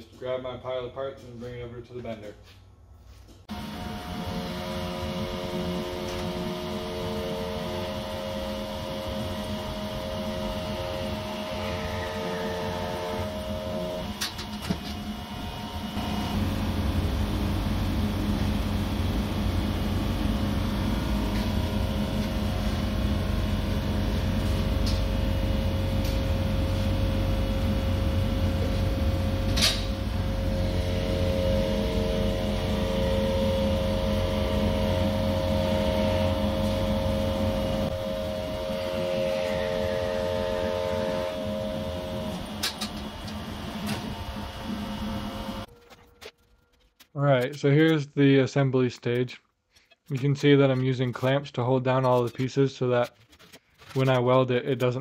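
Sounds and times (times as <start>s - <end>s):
machine motor hum: 3.5s - 45.7s
higher steady tone: 16.0s - 45.7s.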